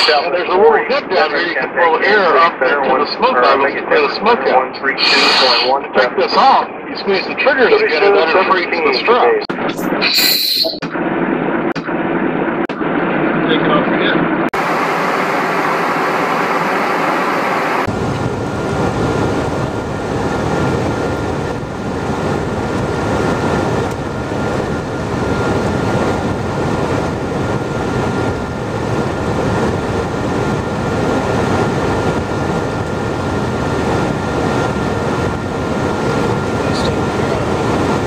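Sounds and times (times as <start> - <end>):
turbofan engine noise: 10.9 - 38.0
rush of airflow: 14.6 - 38.0.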